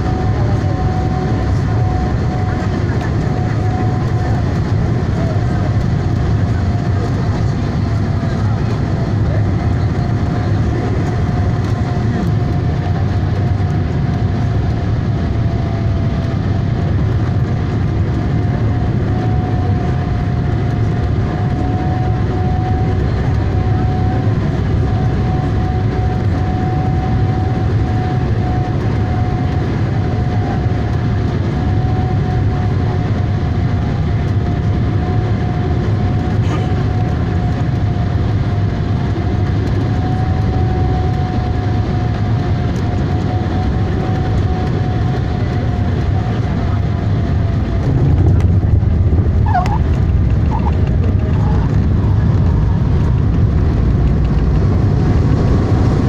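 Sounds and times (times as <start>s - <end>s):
engine and airflow rumble: 0.0s - 56.0s
thin engine whine: 0.0s - 56.0s.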